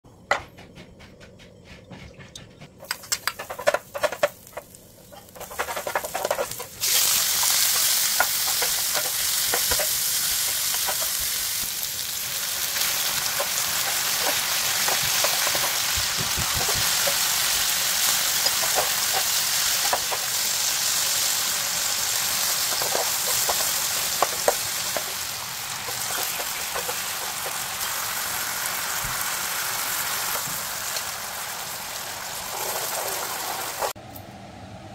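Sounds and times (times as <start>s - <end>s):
knocks and clicks: 0.2s - 6.7s
meat sizzling in hot oil: 3.6s - 34.0s.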